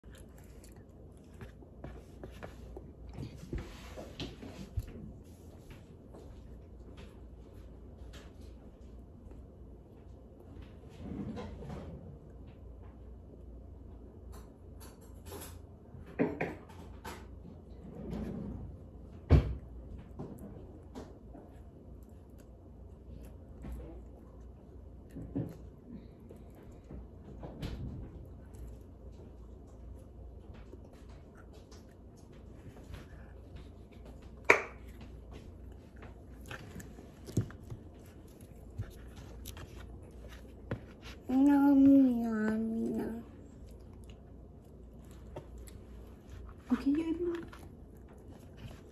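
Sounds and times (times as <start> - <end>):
child chewing: 0.0 - 6.8, 20.0 - 48.9.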